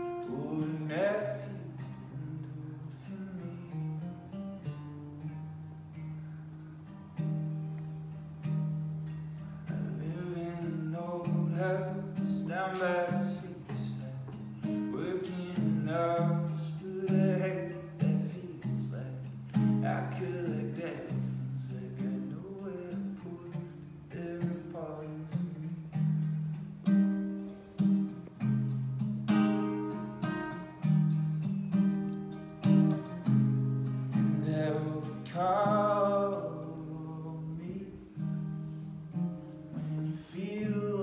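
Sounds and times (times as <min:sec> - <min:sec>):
man singing: 0:00.0 - 0:04.1, 0:09.6 - 0:26.2, 0:34.1 - 0:38.4, 0:39.7 - 0:41.0
acoustic guitar: 0:00.0 - 0:41.0.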